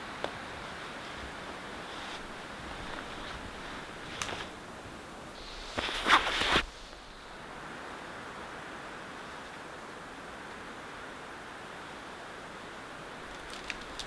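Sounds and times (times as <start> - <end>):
soft outdoor hiss: 0.0 - 14.0
backpack rustling in snow: 0.9 - 7.4.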